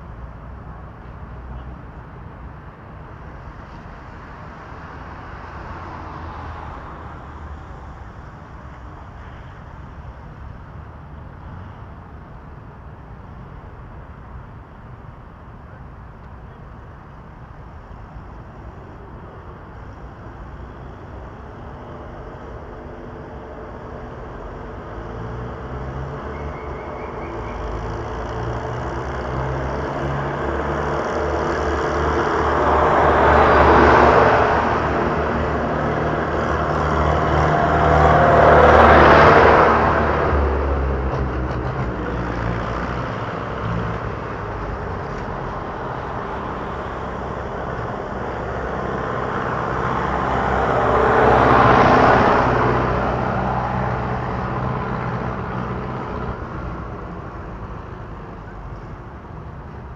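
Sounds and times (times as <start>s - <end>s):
tractor engine passing: 21.0s - 58.8s.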